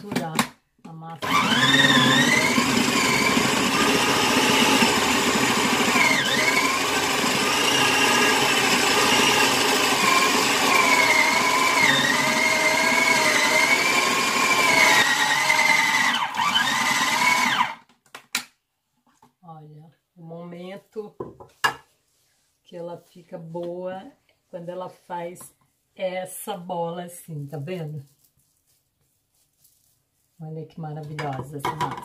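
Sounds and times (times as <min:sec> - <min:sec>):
food processor motor whining: 0:01.2 - 0:17.8.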